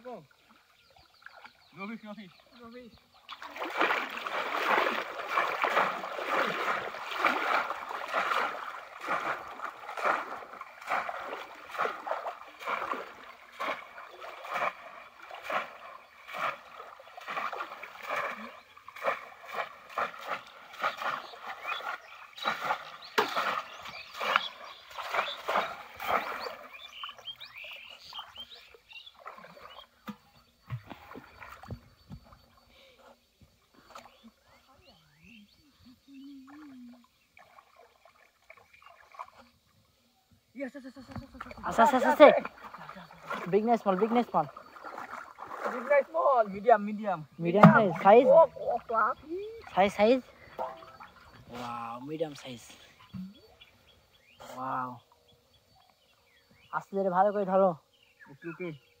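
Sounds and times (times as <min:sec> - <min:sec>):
pond water splashing: 0:00.0 - 0:59.0.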